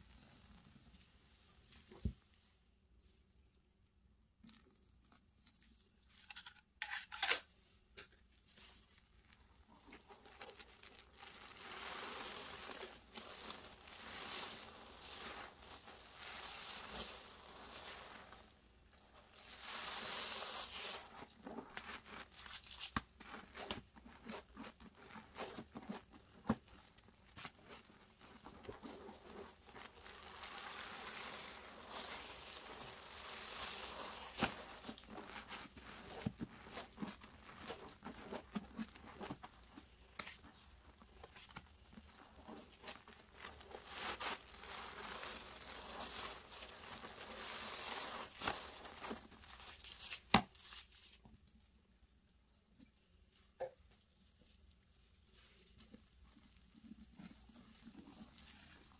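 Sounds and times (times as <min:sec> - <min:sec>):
sponge squelching in foamy paste: 0:00.0 - 0:03.4, 0:08.4 - 0:51.8, 0:52.6 - 0:58.9
small sharp pops and crackles: 0:33.8 - 0:43.6.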